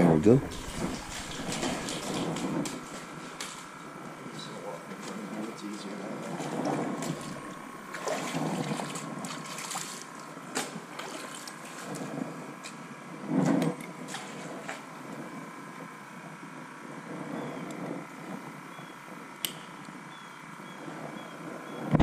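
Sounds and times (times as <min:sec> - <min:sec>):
loud burst: 0:00.3 - 0:02.9
water sloshing and trickling: 0:00.5 - 0:03.8, 0:06.2 - 0:12.2.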